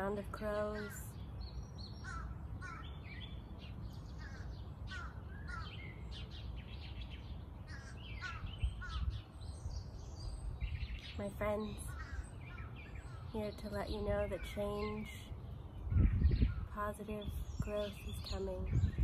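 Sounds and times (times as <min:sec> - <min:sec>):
birds chirping: 0:00.0 - 0:19.0
crows cawing: 0:02.0 - 0:03.0, 0:04.2 - 0:05.8, 0:07.7 - 0:09.1, 0:11.9 - 0:13.2.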